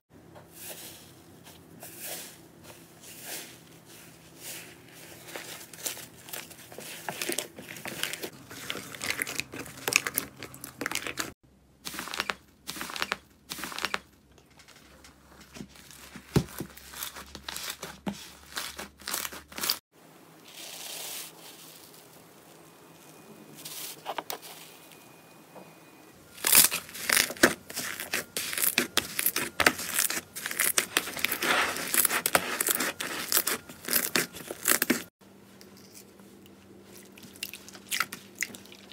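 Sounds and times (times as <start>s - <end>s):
sticky slime crackling and tearing: 26.4s - 35.1s.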